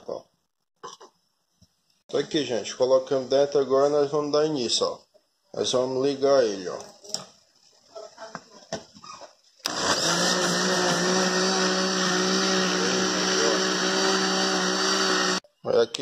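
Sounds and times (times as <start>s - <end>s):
blender motor running: 9.6s - 15.4s.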